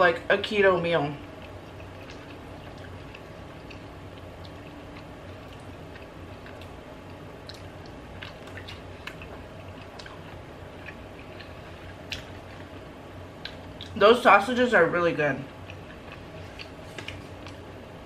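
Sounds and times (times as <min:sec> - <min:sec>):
mouth chewing soft food: 0:01.2 - 0:14.0, 0:15.5 - 0:17.7
wet mouth clicks and smacks: 0:01.7 - 0:10.3.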